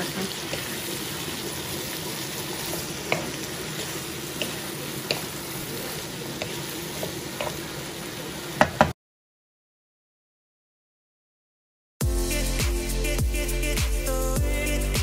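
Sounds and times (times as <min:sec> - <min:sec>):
food sizzling in a wok: 0:00.0 - 0:08.9.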